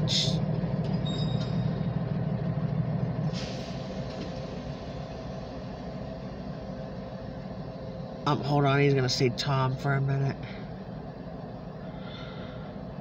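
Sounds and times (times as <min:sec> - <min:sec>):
diesel locomotive idling: 0:00.0 - 0:13.0
brake air hiss: 0:03.2 - 0:06.4.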